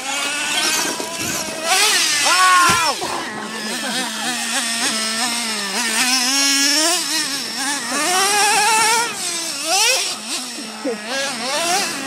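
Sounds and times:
small engine revving: 0.0 - 12.0.

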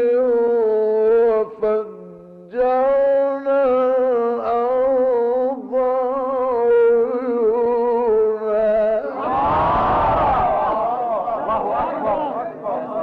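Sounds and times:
man chanting melodically: 0.0 - 9.3
crowd calling out: 9.1 - 13.0.

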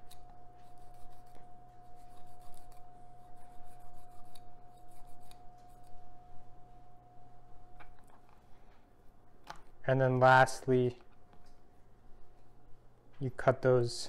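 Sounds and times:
knife scraping on cutting board: 0.0 - 6.0
steady high hum: 0.0 - 14.0.

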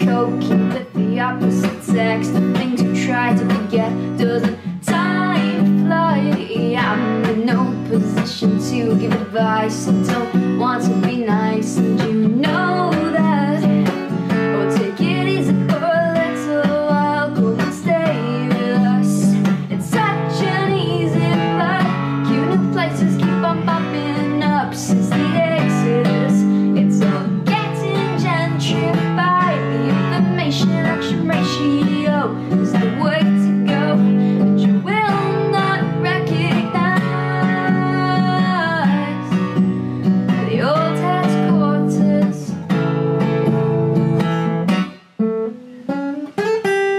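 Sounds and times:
person singing: 0.0 - 39.6, 40.2 - 42.6
acoustic guitar strumming: 0.0 - 46.9.

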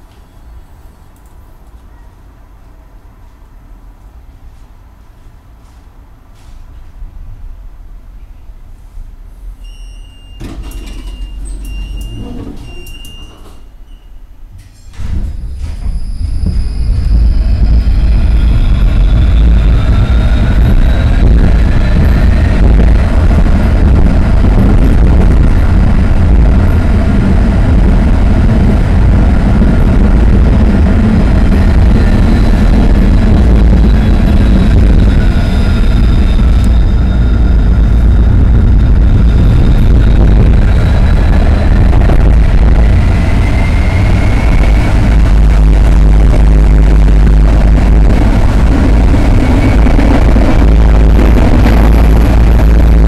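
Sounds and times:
tram wheels rumbling on rails: 0.0 - 53.0
tram motors whining: 9.5 - 53.0
short electronic beeps: 9.6 - 14.2.

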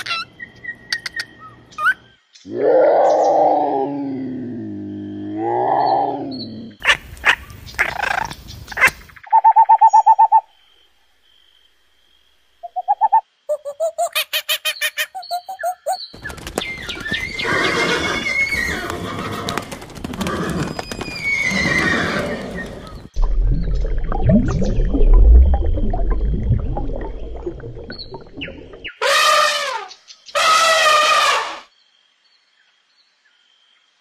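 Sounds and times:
sharp clicky animal calls: 0.9 - 1.9, 6.8 - 10.2
herd of horses: 16.2 - 23.1
horse whinny: 17.2 - 23.0
pulsed animal notes: 23.2 - 28.9.

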